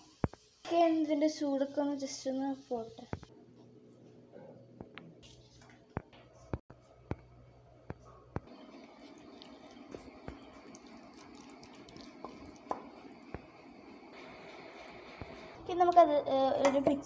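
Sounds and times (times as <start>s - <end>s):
faint stirring noise: 7.9s - 17.0s.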